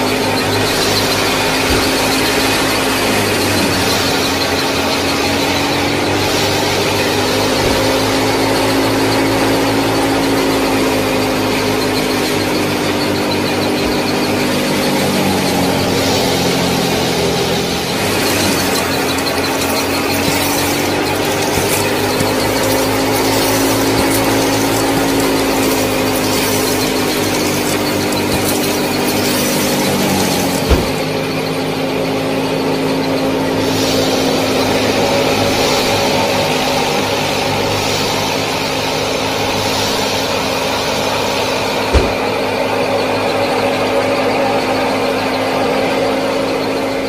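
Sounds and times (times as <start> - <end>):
small motors humming: 0.0 - 47.0
sharp thumps: 15.8 - 31.4, 41.8 - 42.5.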